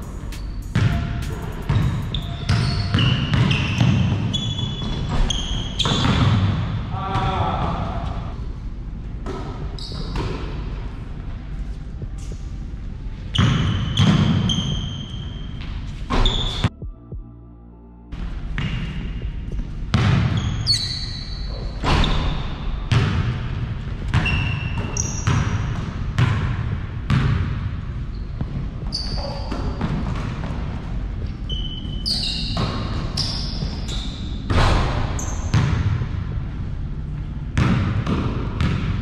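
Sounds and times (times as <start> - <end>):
sneaker squeaks: 0.0 - 6.5, 9.6 - 10.6, 13.2 - 16.8, 20.0 - 22.8, 24.1 - 25.8, 28.0 - 30.3, 31.2 - 35.8
basketball bouncing on court: 0.3 - 7.4, 13.3 - 17.2, 19.9 - 21.0, 21.8 - 27.8, 28.4 - 30.9, 31.5 - 36.1, 37.6 - 39.0.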